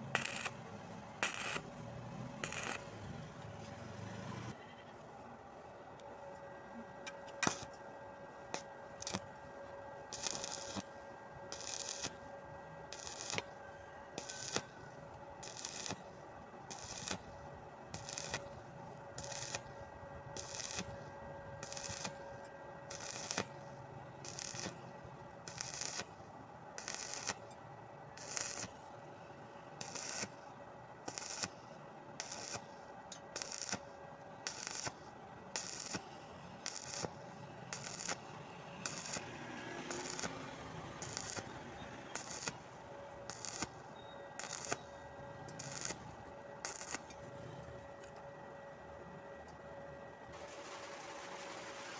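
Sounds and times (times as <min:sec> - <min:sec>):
welding arc bursts: 0:00.0 - 0:00.6, 0:01.2 - 0:01.7, 0:02.4 - 0:02.9, 0:07.4 - 0:07.7, 0:08.5 - 0:09.2, 0:10.1 - 0:10.9, 0:11.5 - 0:12.2, 0:12.9 - 0:13.6, 0:14.2 - 0:19.8, 0:20.4 - 0:21.0, 0:21.6 - 0:22.3, 0:22.9 - 0:24.8, 0:25.4 - 0:26.2, 0:26.8 - 0:27.6, 0:28.2 - 0:28.8, 0:29.8 - 0:30.4, 0:31.1 - 0:31.6, 0:32.2 - 0:43.8, 0:44.4 - 0:44.9, 0:45.5 - 0:47.1, 0:50.4 - 0:51.9.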